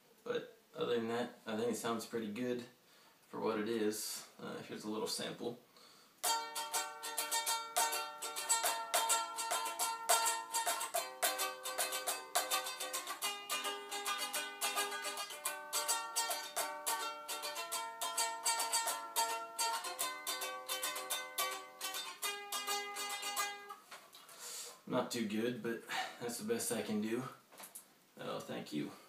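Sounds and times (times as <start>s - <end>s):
ukulele chords strummed: 6.2s - 23.8s.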